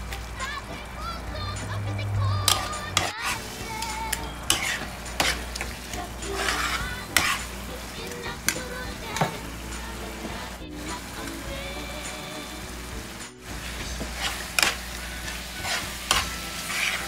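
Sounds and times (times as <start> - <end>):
food sizzling: 0.0 - 17.0
metal spoon scraping frying pan: 2.2 - 11.4, 13.5 - 17.0.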